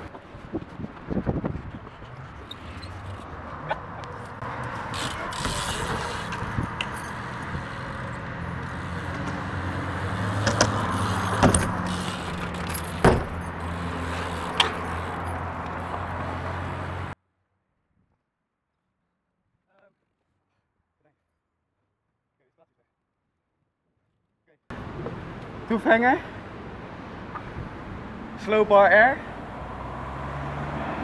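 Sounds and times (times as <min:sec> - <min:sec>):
bike tyres rolling on concrete: 0:00.0 - 0:17.2
bike landing knocks: 0:10.4 - 0:13.5.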